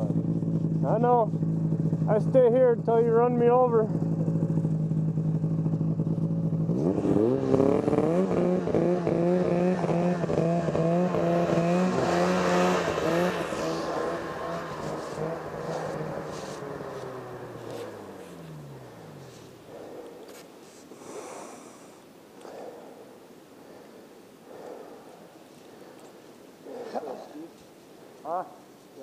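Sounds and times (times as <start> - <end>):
snowmobile engine revving: 0.0 - 21.8.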